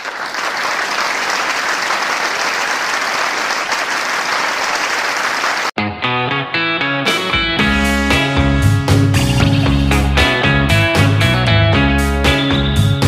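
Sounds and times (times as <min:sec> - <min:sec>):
crowd applause: 0:00.0 - 0:05.8
plucked guitar music: 0:05.8 - 0:13.0.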